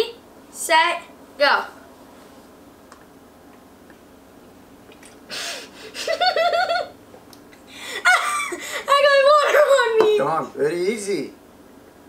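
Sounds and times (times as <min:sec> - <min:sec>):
high-pitched laughter: 0:06.0 - 0:07.0.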